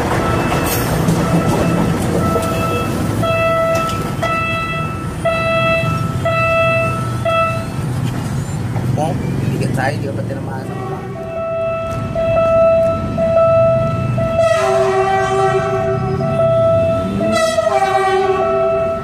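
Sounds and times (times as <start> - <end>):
diesel train passing: 0.0 - 19.0
pulsing horn tone: 1.2 - 7.8, 10.6 - 19.0.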